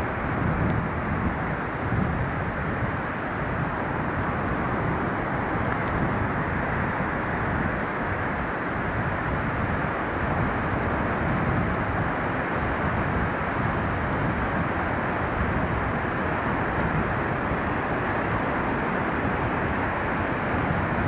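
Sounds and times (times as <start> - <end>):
surf breaking on a sandy beach: 0.0 - 21.0
wind noise on the microphone: 0.0 - 21.0.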